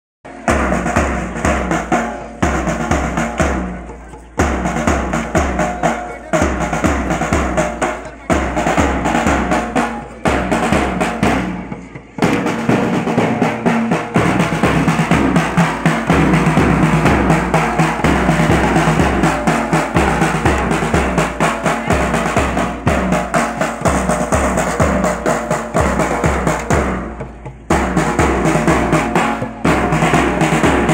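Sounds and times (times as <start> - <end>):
bass drum steady beat: 0.3 - 30.9
snare drum rolls: 0.3 - 30.9.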